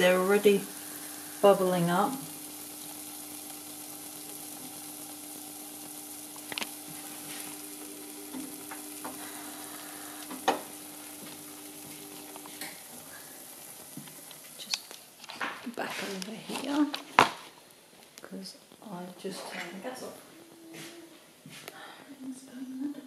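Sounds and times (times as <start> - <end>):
dough sizzling in oil: 0.0 - 17.8.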